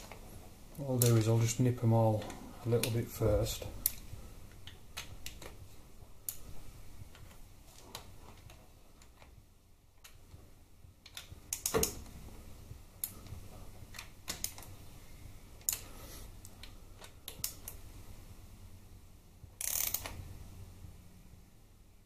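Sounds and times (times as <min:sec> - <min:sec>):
socket ratchet clicking: 0:11.1 - 0:12.0, 0:19.6 - 0:20.2.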